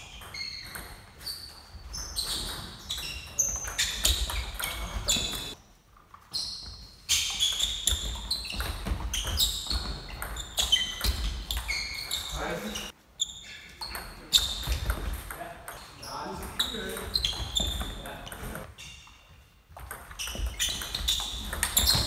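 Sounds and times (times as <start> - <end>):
sports shoes squeaking on floor: 0.0 - 22.0
table tennis ball clicking and bouncing: 2.2 - 5.6, 7.5 - 12.2, 13.9 - 18.6, 19.7 - 22.0.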